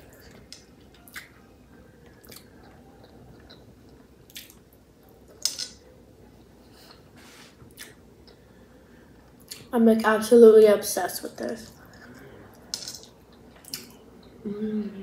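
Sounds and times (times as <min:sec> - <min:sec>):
person chewing food: 0:00.0 - 0:04.7.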